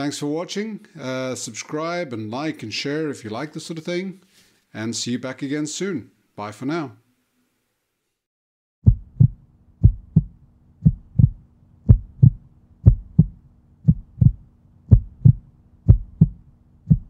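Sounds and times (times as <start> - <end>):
heartbeat-like low thumps: 8.8 - 17.0
faint low hum: 8.9 - 17.0.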